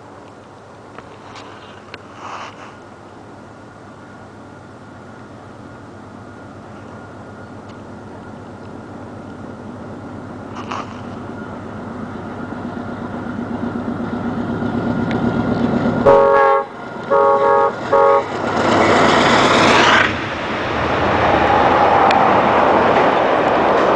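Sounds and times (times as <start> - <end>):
diesel locomotive engine: 0.0 - 23.9
train passing with loud rush: 0.0 - 23.9
train horn blasts: 16.0 - 18.4.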